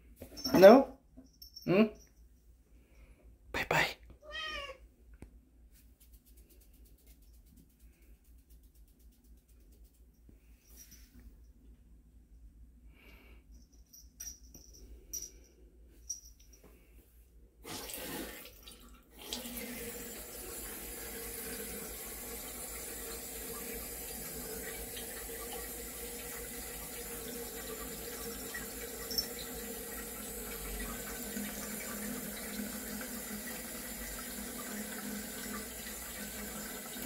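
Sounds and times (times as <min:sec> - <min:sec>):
tap water pouring into basin: 0:17.6 - 0:37.0.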